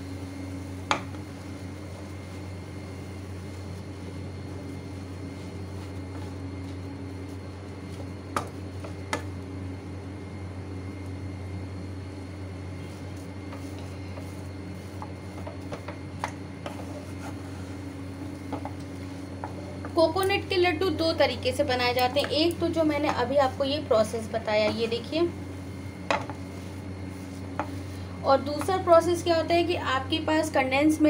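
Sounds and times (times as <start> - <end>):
steady low hum: 0.0 - 31.0
spatula scraping a frying pan: 16.6 - 17.8.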